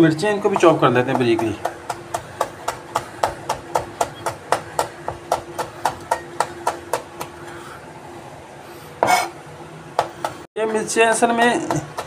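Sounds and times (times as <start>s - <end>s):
knife chopping on plastic board: 0.5s - 7.4s, 11.6s - 12.0s.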